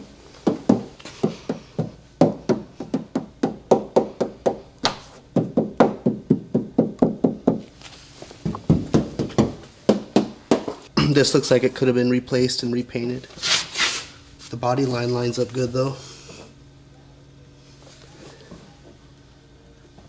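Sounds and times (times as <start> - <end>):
knuckles rapping on sheet metal: 0.7 - 7.6.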